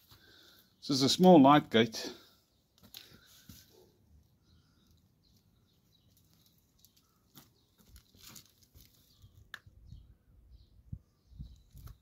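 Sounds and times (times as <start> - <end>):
rustles: 2.8 - 9.6.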